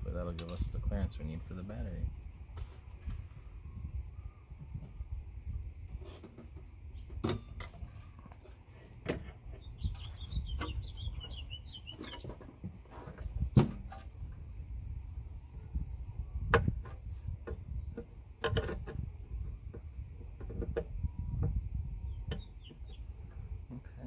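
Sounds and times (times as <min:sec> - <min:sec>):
small bird twittering: 0:09.6 - 0:12.4, 0:22.0 - 0:23.2.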